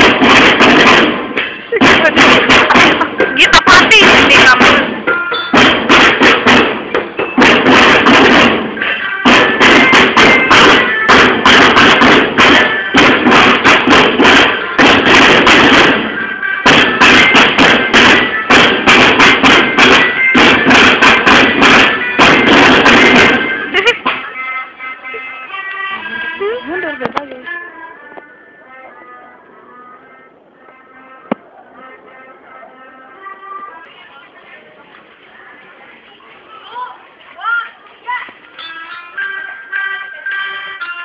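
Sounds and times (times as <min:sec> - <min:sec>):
marching snare drums: 0:00.0 - 0:24.3.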